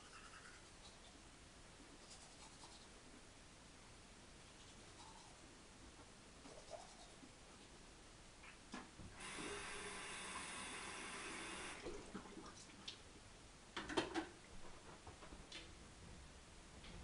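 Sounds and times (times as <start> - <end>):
toothbrush scrubbing: 0.0 - 1.1, 2.0 - 2.9, 4.5 - 5.4, 6.5 - 7.2.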